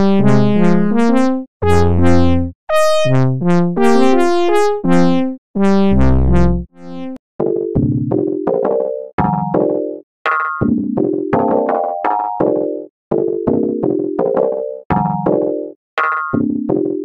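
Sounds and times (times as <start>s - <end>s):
brassy synthesizer notes and chords: 0.0s - 7.2s.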